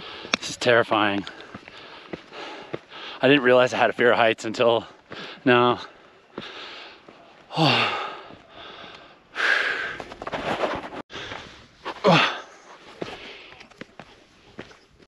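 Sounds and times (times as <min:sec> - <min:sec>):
person breathing hard: 0:01.2 - 0:03.2, 0:06.3 - 0:10.0
voiced sigh: 0:07.5 - 0:10.0, 0:11.2 - 0:12.6.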